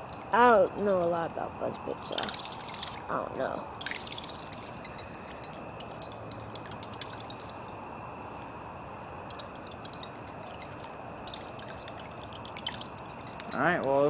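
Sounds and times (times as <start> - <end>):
night insects trilling: 0.0 - 14.0
fishing lure clicking in water: 3.8 - 7.8, 9.3 - 14.0.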